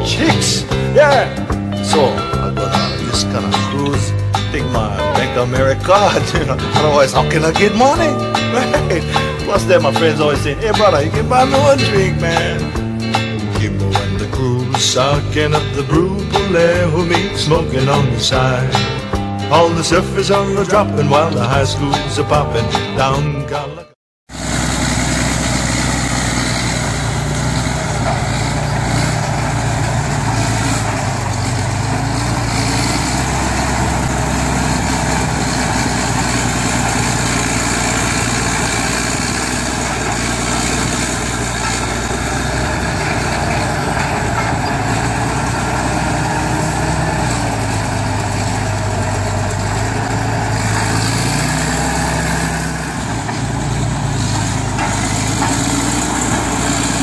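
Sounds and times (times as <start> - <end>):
bulldozer diesel engine running: 0.0 - 22.9, 24.3 - 57.0.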